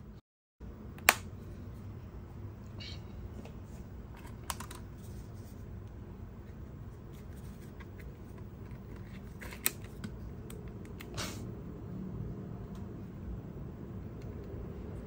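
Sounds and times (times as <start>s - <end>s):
steady low hum: 0.0s - 15.0s
camera being handled: 7.1s - 10.2s.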